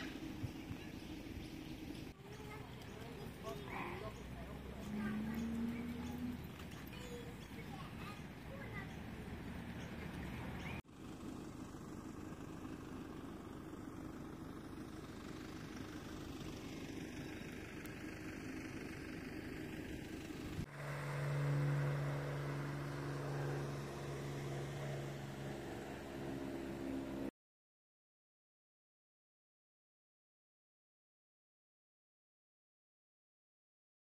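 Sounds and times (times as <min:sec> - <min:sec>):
engine running: 0:00.0 - 0:27.3
low pitched hum: 0:11.5 - 0:27.3.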